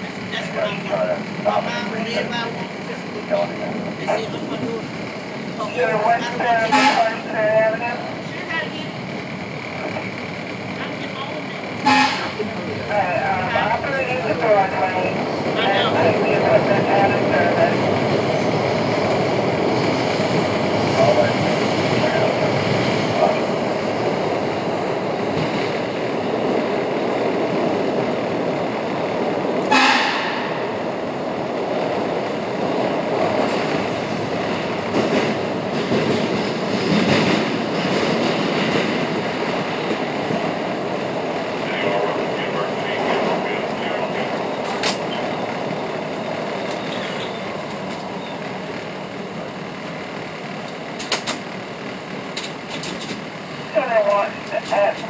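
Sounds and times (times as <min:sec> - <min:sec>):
train running on rails: 0:00.0 - 0:55.0
train horn toot: 0:06.6 - 0:07.2, 0:11.8 - 0:12.3, 0:29.7 - 0:30.4.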